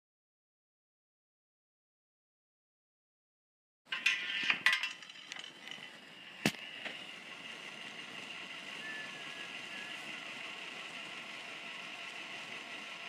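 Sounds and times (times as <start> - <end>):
steady hiss: 5.8 - 13.0.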